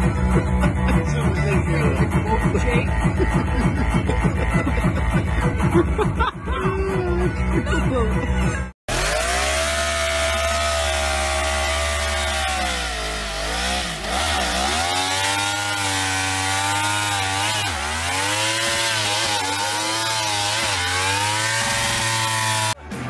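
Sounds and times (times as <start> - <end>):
motorcycle engine revving: 8.9 - 22.9.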